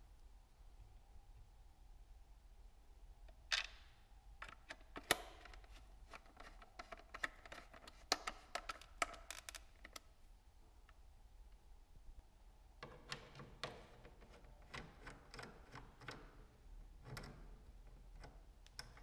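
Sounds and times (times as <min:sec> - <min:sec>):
screwdriver clicking on plastic: 0:04.4 - 0:10.0.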